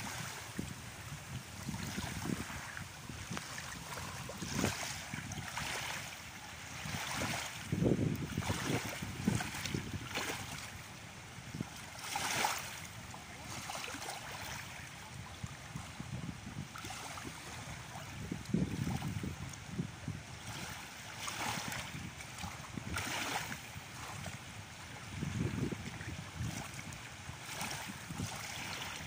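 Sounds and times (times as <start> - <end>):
small waves lapping on sand: 0.0 - 29.0
wind rumbling on microphone: 0.0 - 29.0.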